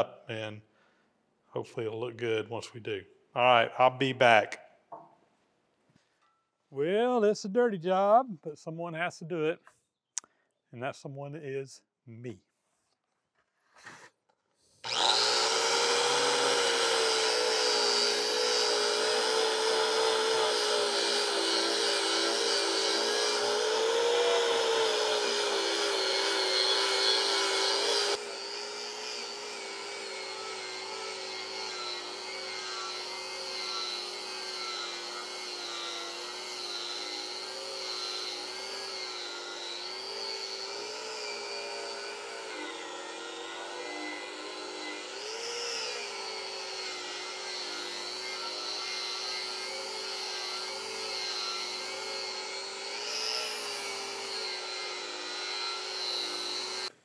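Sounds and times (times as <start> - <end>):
wire wheel grinder scrubbing metal: 14.9 - 56.9.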